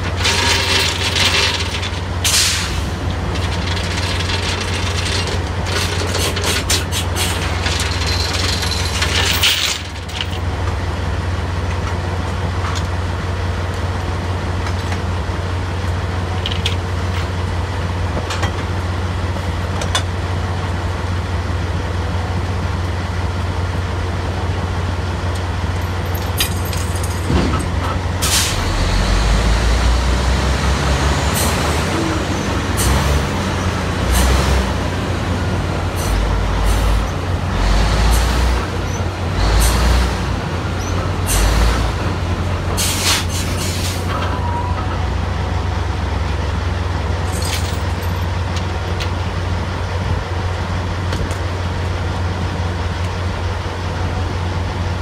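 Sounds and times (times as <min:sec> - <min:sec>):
drilling rig engine drone: 0:17.4 - 0:55.0.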